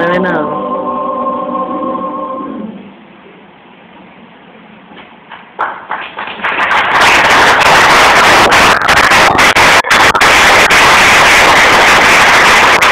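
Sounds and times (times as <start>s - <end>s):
audience applause: 5.4s - 12.9s.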